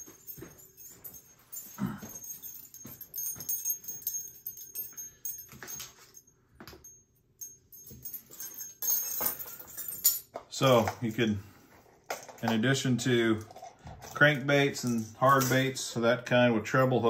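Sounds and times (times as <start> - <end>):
metallic clinks of lures: 0.0 - 11.0.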